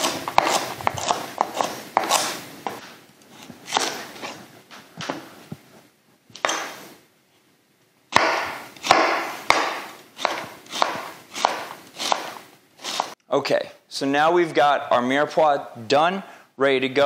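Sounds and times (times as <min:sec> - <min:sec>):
knife slicing fennel: 0:00.0 - 0:02.5, 0:03.4 - 0:04.4, 0:08.2 - 0:13.2.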